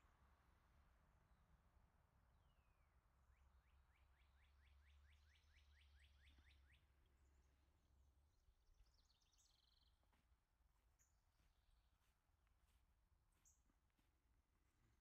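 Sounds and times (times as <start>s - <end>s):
bird chirps: 2.6s - 7.6s, 8.6s - 10.2s.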